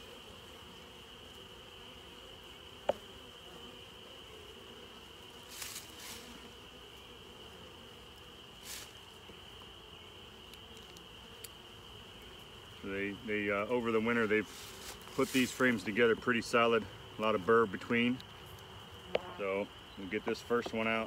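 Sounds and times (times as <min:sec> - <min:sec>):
honeybees buzzing: 0:00.0 - 0:21.0
hive tool scraping frames: 0:00.1 - 0:12.8, 0:13.9 - 0:16.1.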